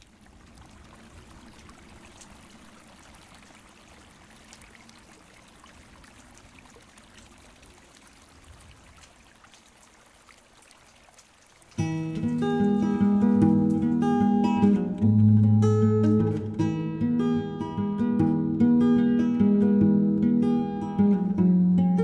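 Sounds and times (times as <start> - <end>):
creek water rushing: 0.0 - 17.0.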